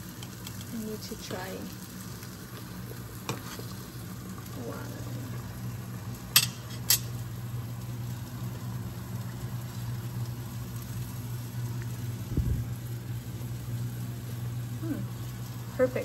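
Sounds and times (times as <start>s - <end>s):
pot of pasta boiling: 0.0s - 16.0s.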